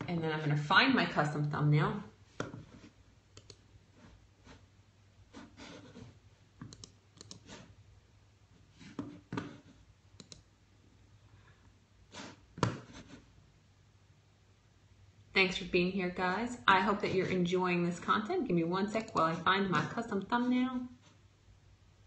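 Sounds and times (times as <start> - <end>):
faint low hum: 0.0 - 22.0
computer mouse clicking: 3.3 - 3.6, 6.6 - 7.6, 10.2 - 10.5, 19.0 - 19.4.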